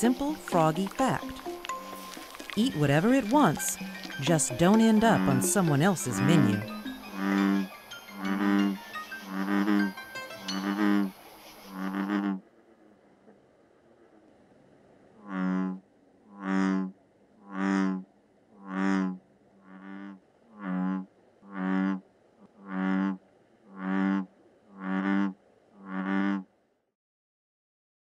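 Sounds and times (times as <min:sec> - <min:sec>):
bullfrog calling: 0:00.0 - 0:12.5, 0:15.2 - 0:26.5.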